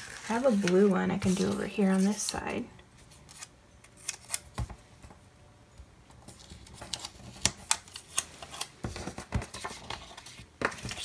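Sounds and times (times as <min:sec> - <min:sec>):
paper rustle: 0:00.0 - 0:02.4, 0:06.3 - 0:11.0.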